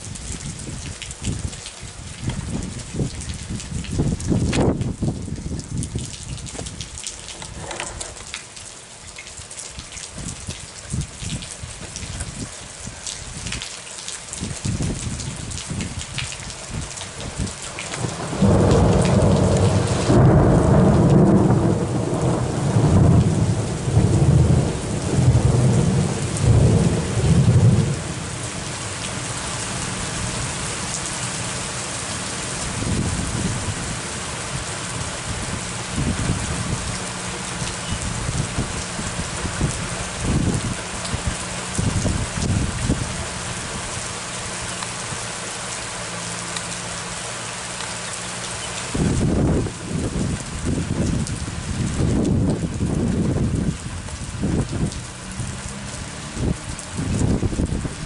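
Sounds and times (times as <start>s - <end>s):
rain pattering: 0.0s - 58.0s
thunder rumbling: 17.2s - 28.8s, 48.9s - 58.0s.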